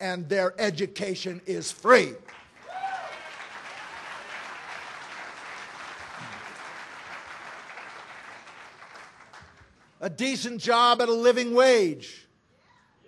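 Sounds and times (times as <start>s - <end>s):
audience applauding: 2.2s - 9.9s.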